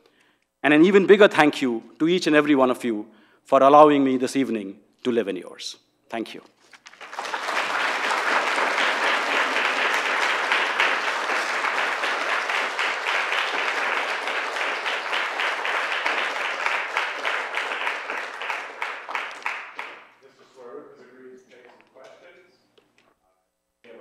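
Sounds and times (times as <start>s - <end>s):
audience applauding: 6.8s - 20.2s.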